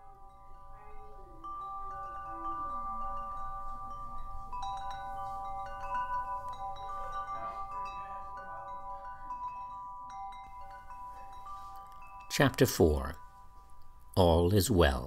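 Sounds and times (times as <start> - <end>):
metallic chimes ringing: 0.0 - 15.0.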